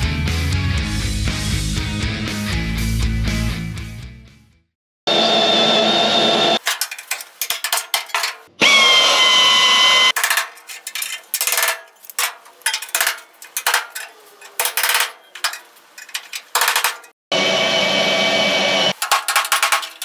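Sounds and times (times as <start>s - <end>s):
cordless drill whining: 8.6s - 10.1s.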